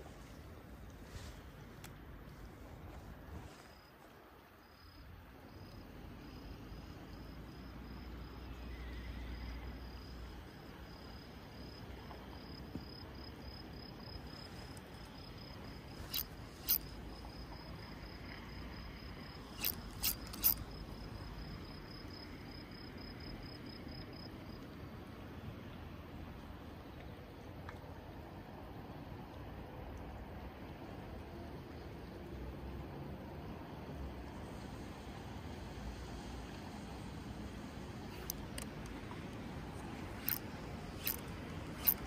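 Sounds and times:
insect chirping: 4.6s - 24.3s, 38.0s - 38.6s, 39.9s - 42.0s
sharp clicks: 16.1s - 16.8s, 19.6s - 20.6s, 40.2s - 40.4s, 41.0s - 42.0s.

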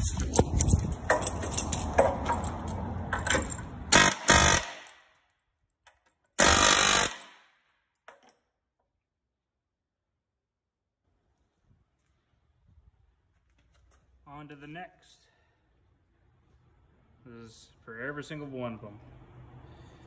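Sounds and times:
power drill boring through steel: 4.0s - 4.7s, 6.4s - 7.2s.

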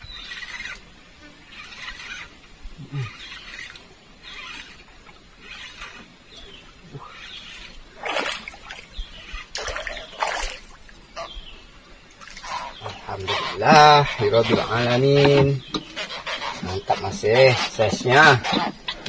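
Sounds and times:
fish splashing in water: 3.2s - 11.3s.

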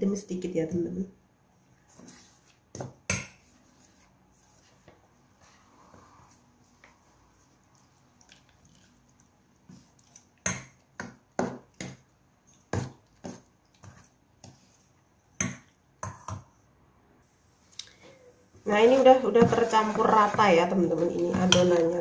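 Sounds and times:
metal ladle scraping steel bowl: 18.8s - 22.0s.

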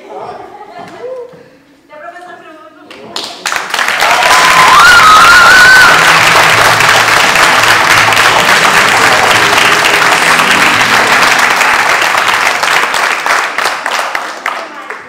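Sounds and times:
audience applauding: 3.2s - 15.0s.

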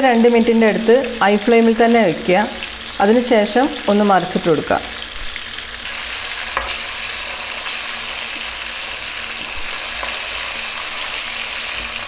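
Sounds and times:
chicken sizzling in hot oil: 0.0s - 12.0s
spatula turning food in pan: 5.0s - 12.0s.

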